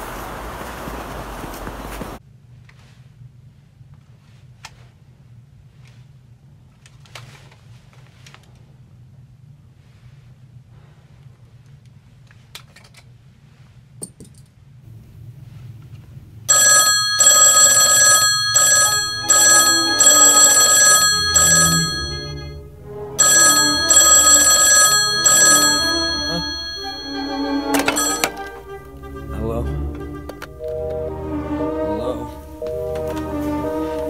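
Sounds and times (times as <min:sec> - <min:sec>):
telephone ringing: 0:16.5 - 0:29.2.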